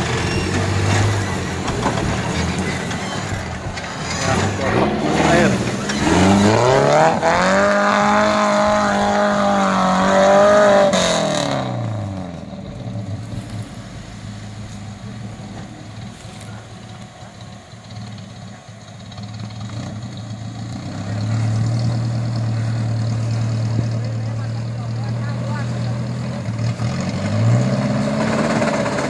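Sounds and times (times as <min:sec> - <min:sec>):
buggy engine revving: 0:00.0 - 0:29.0.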